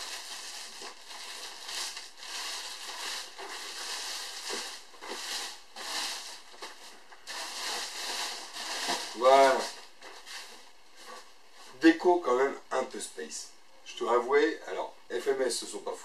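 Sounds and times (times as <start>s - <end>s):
plastic bag crinkling: 0.0s - 11.3s.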